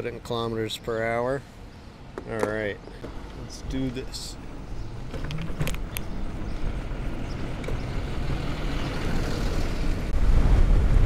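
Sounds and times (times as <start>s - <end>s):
wind noise on microphone: 4.8s - 11.0s.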